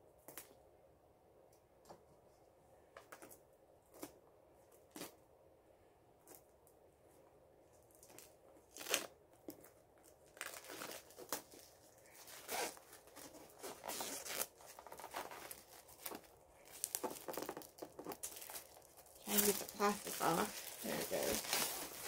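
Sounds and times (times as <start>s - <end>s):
plastic wrap crinkling: 7.8s - 22.0s
plastic wrap ripping: 8.0s - 9.1s, 10.1s - 22.0s.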